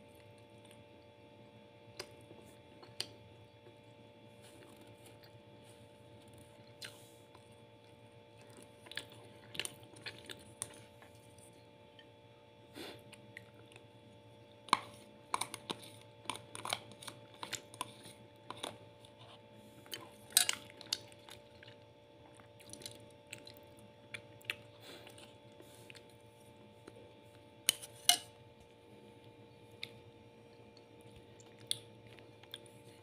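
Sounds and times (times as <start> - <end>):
faint steady hum: 0.0 - 33.0
mouth chewing rice: 1.8 - 28.0, 28.6 - 33.0.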